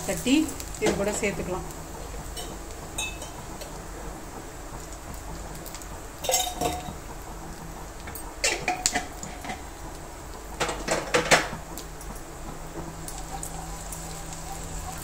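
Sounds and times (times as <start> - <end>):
metal vessels clattering: 6.2 - 7.0, 8.4 - 9.7.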